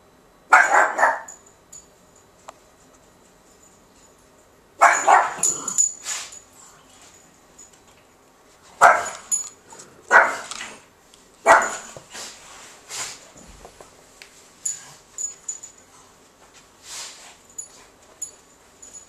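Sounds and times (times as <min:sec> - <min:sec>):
dog barking: 0:00.5 - 0:01.3, 0:04.8 - 0:05.5, 0:08.8 - 0:09.3, 0:10.1 - 0:10.5, 0:11.4 - 0:12.0.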